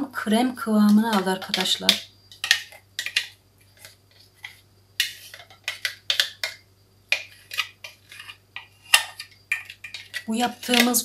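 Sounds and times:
spatula scraping puree: 0.2 - 11.0.

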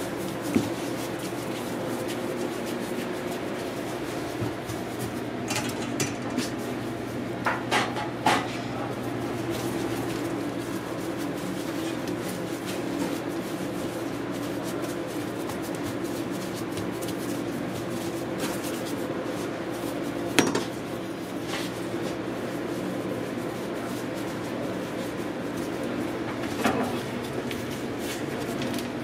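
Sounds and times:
kitchen equipment hum: 0.0 - 29.0
pans and utensils clinking: 5.4 - 6.5.

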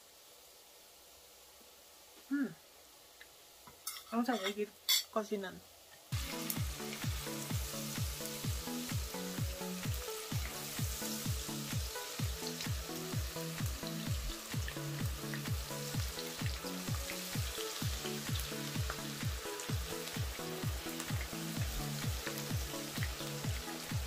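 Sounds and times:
food sizzling in hot oil: 0.0 - 24.0
background music with steady beat: 6.1 - 24.0.

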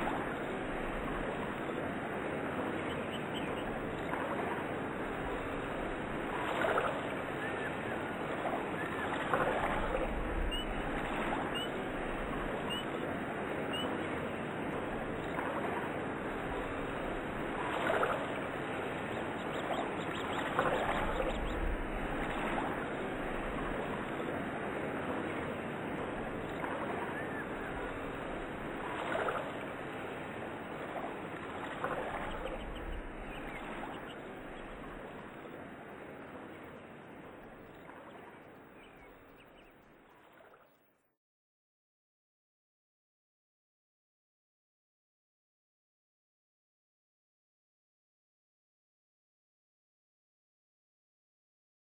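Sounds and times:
water splashing: 0.0 - 40.8
running water rushing: 0.0 - 40.9
bird chirps: 1.2 - 5.8, 6.7 - 15.4, 18.2 - 24.5, 26.3 - 29.4, 30.0 - 35.6, 36.2 - 40.9.

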